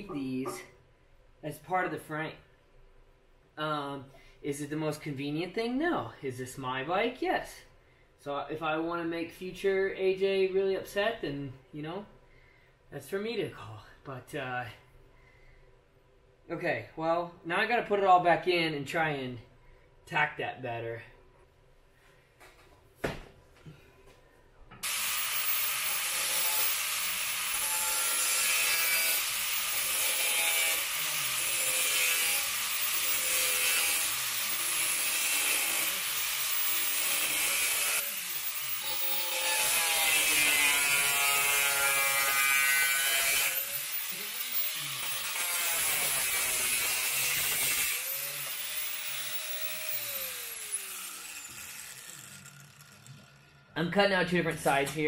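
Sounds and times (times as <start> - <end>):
angle grinder cutting sheet metal: 24.8 - 53.8.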